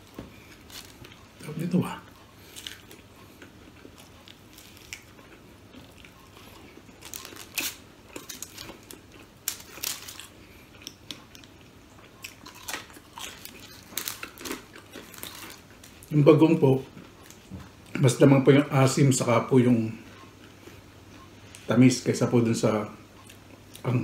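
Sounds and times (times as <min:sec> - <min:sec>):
chewing crunches: 0:00.0 - 0:16.2.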